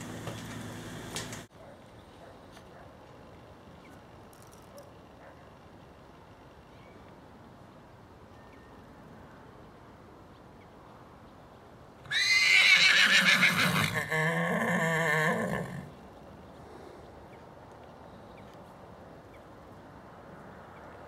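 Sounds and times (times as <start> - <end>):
horse whinnying: 12.1 - 15.9.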